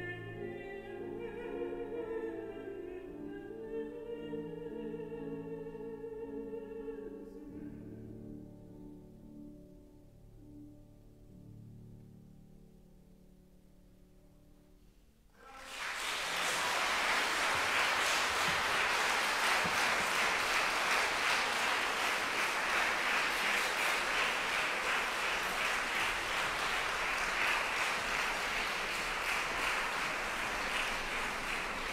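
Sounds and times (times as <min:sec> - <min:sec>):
audience applause: 0:15.4 - 0:31.9.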